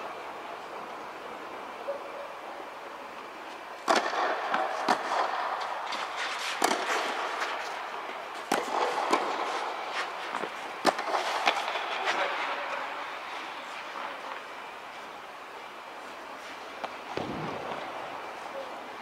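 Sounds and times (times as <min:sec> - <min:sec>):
tennis ball racquet pops: 0:03.8 - 0:05.3, 0:08.4 - 0:09.5.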